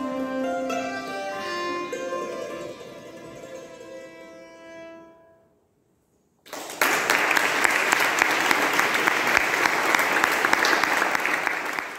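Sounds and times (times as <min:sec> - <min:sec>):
audience applauding: 0:06.5 - 0:11.9.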